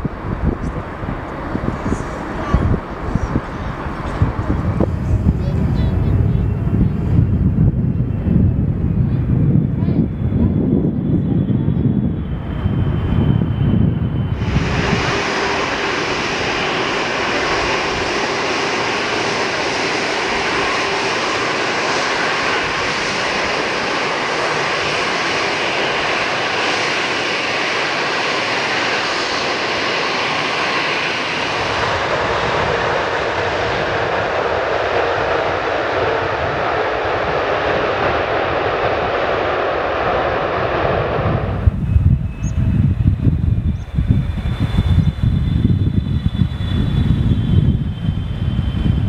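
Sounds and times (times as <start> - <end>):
jet engines roaring: 0.0 - 49.0.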